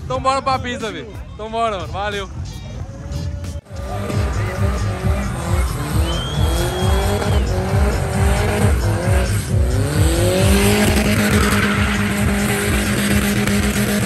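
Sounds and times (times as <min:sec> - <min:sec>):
car engine revving: 0:03.6 - 0:14.0.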